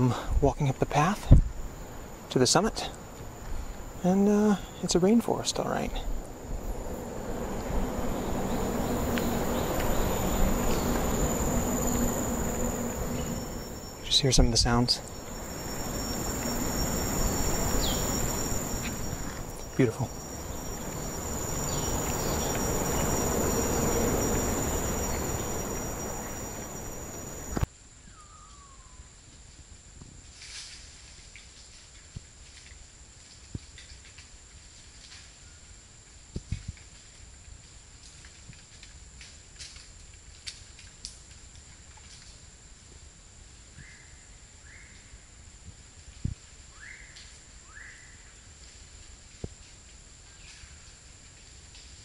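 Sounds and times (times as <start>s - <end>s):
rasping insect drone: 0.0s - 29.2s
high-pitched insect whine: 0.0s - 38.2s, 40.6s - 52.0s
forest ambience: 0.0s - 52.0s
bird short rising call: 15.0s - 29.0s.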